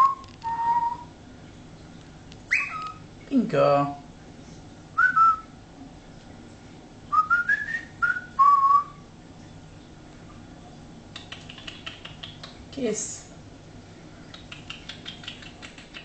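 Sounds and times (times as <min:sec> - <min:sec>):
cockatiel whistling: 0:00.0 - 0:01.1, 0:02.5 - 0:03.0
faint clicks: 0:11.1 - 0:12.6, 0:14.3 - 0:16.0.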